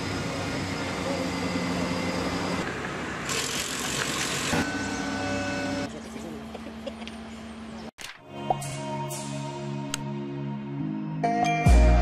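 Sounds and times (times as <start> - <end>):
concrete pump machine hum: 0.0 - 7.5.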